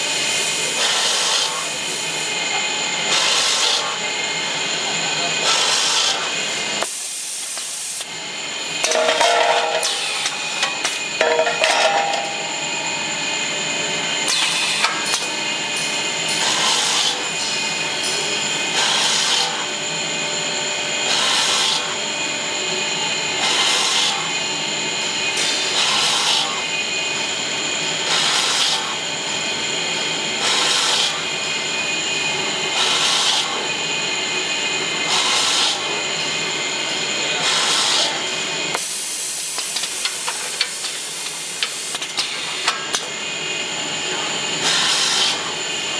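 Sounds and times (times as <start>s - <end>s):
metal clanks: 8.8s - 12.5s.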